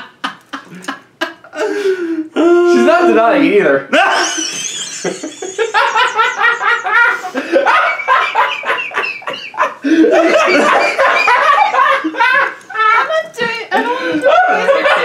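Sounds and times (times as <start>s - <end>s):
man and woman laughing: 0.0s - 1.9s, 3.9s - 15.0s.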